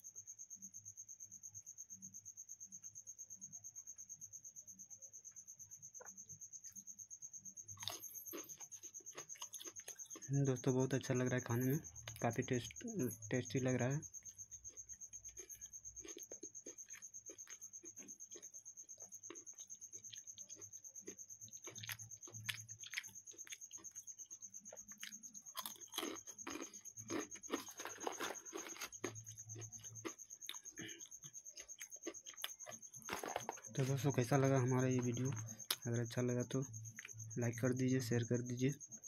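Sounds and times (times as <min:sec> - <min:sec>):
crunching and chewing snacks: 0:07.7 - 0:37.3.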